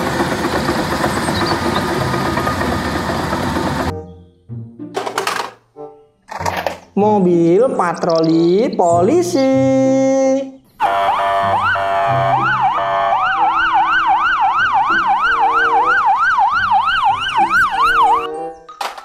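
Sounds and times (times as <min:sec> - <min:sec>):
police siren wailing: 0:10.8 - 0:18.4.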